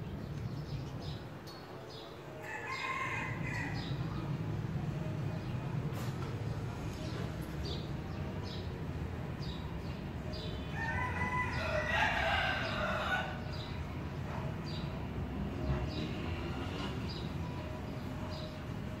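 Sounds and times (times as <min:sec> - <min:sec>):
rooster crowing: 0:02.4 - 0:03.9, 0:10.7 - 0:13.5.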